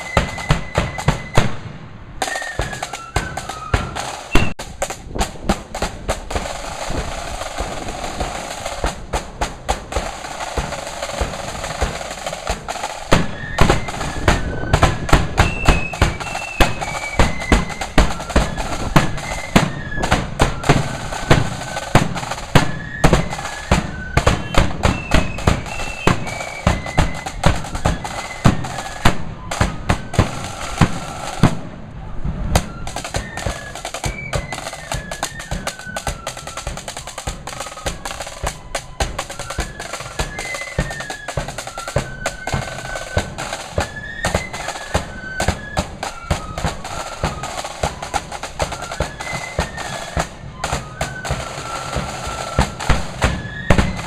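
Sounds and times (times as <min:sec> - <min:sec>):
flutes playing melody: 0:00.0 - 0:05.2, 0:06.4 - 0:54.0
side drums and bass drum: 0:00.0 - 0:31.8, 0:32.5 - 0:54.0.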